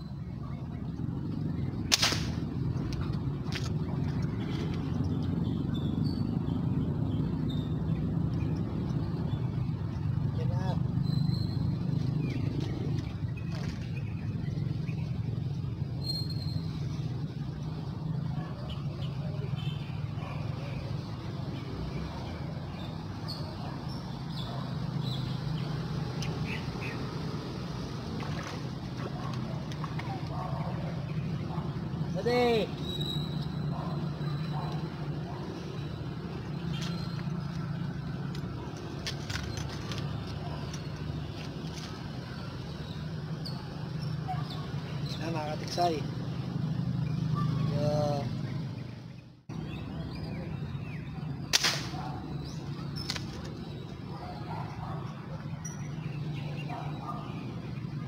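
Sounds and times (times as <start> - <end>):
high bird chirps: 11.0 - 15.2, 16.0 - 17.2, 32.7 - 34.7
sharp click: 51.5 - 52.0.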